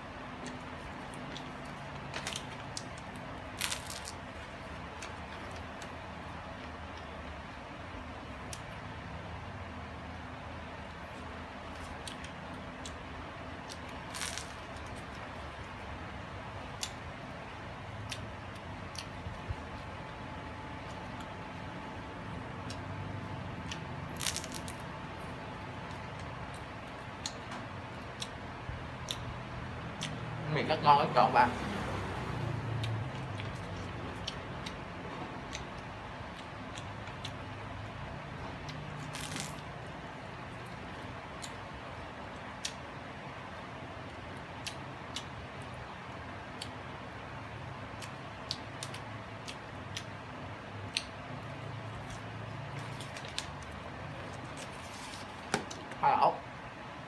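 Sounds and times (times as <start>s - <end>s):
steady low hum: 0.0s - 57.0s
crusty bread crunching when bitten: 0.5s - 4.4s, 13.6s - 15.2s, 23.7s - 24.9s, 38.9s - 39.8s.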